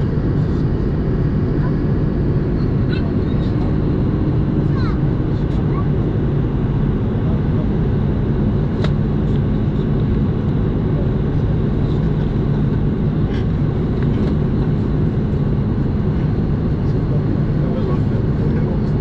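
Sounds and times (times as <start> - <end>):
aircraft engine drone: 0.0 - 19.0.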